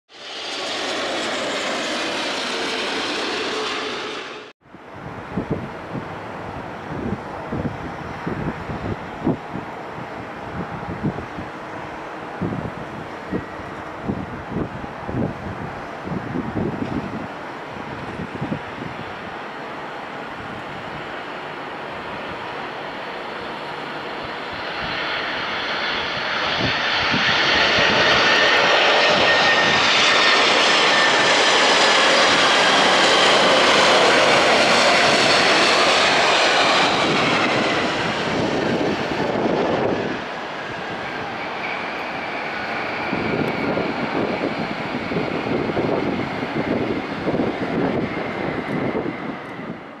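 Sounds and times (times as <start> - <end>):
jet reverse thrust rumble: 0.1 - 4.6, 23.2 - 49.9
jet roar with falling whine: 0.1 - 50.0.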